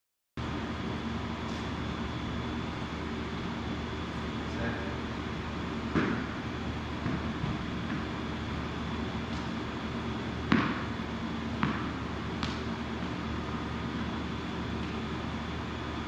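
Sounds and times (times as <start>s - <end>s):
room ventilation hum: 0.4s - 16.0s
ball hitting rubber floor: 5.9s - 6.4s, 7.0s - 8.2s, 10.4s - 13.2s.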